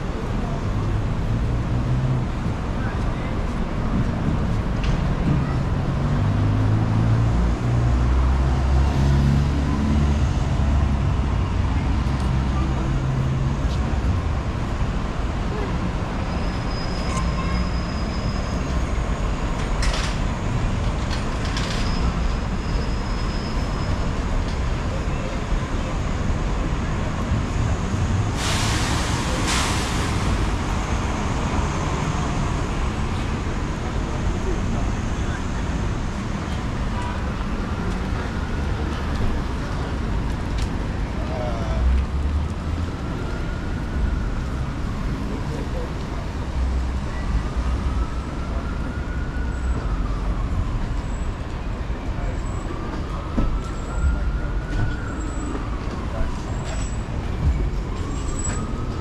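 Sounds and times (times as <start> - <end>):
passing vehicles rumbling: 0.0 - 59.0
distant siren wailing: 42.8 - 59.0.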